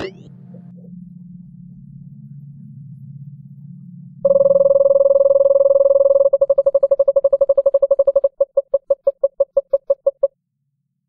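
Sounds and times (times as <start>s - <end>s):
low electronic drone: 0.0s - 10.3s
loud synthesized tone pulsing: 4.2s - 10.3s.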